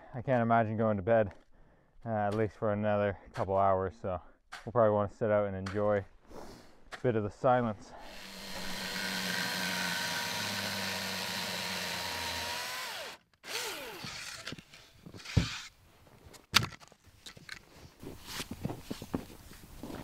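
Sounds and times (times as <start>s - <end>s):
small engine winding down: 8.0s - 14.5s.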